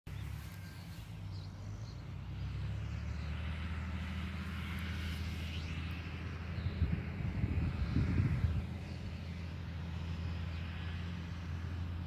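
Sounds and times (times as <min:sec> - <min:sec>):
high bird calls: 0:00.1 - 0:02.0
distant motor drone: 0:00.1 - 0:12.0.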